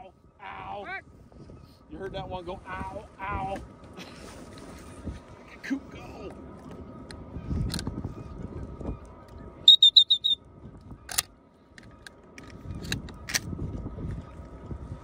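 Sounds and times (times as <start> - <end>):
shrill whistle pips: 9.7 - 10.4.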